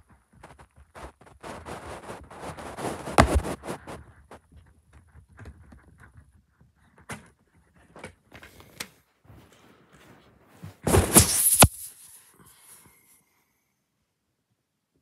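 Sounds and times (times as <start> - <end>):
plastic case scraping and rattling: 1.0 - 4.0.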